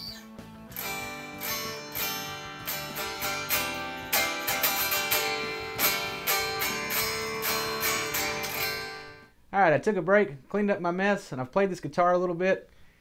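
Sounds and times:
electric guitar picked notes: 0.0s - 9.3s.

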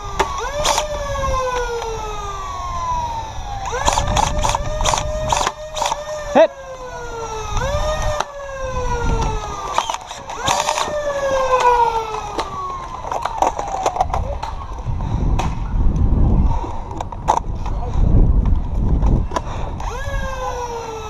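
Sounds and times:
siren wailing: 0.0s - 14.5s, 19.8s - 21.0s.

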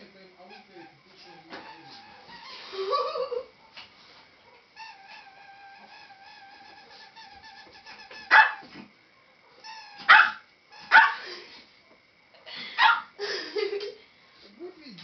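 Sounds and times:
small dog barking: 8.3s - 8.7s, 9.4s - 11.2s, 12.8s - 13.2s.

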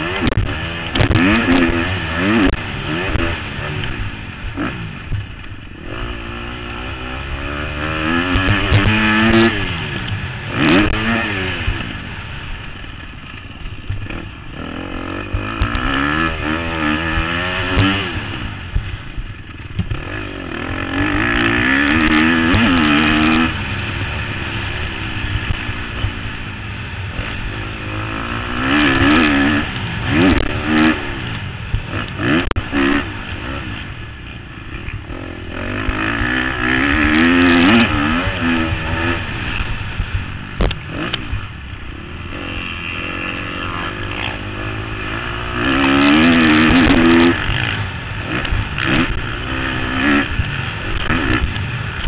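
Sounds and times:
knocks and clatter from bike: 0.0s - 4.0s, 12.6s - 14.3s, 18.7s - 20.2s
motorcycle engine revving: 0.0s - 52.0s.

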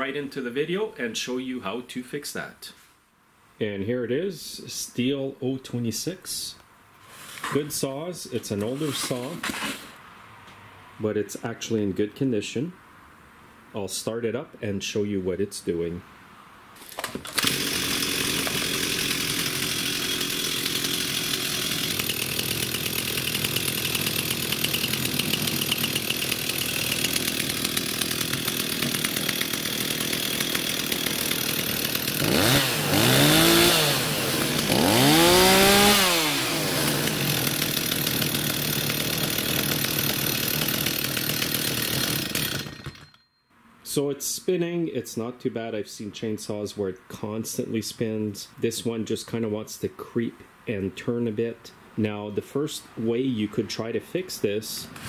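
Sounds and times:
chainsaw engine idling and revving: 17.0s - 43.2s.

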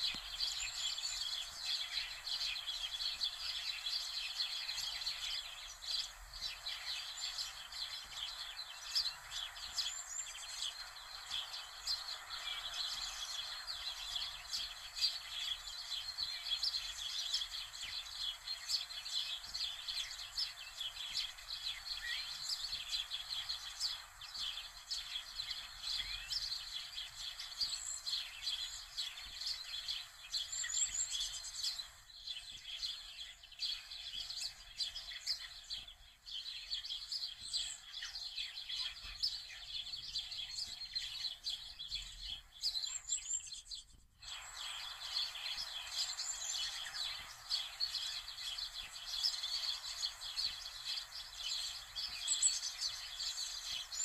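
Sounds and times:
small birds chirping: 0.0s - 54.0s.

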